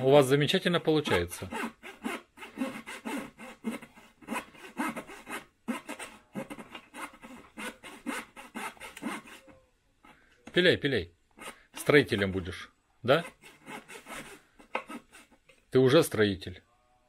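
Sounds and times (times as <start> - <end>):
hand saw cutting wood: 0.0 - 9.5, 11.4 - 15.4.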